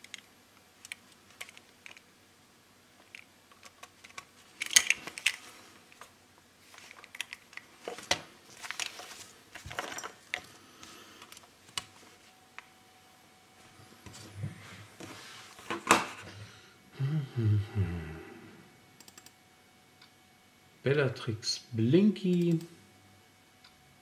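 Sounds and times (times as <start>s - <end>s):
clicks and rattles of circuit board: 0.0s - 2.1s, 3.0s - 5.4s.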